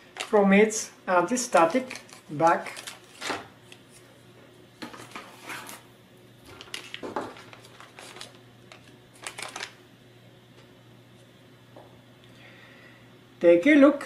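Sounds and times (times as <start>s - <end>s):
plastic bag crinkling: 0.0s - 0.5s, 1.4s - 3.3s, 6.5s - 9.8s.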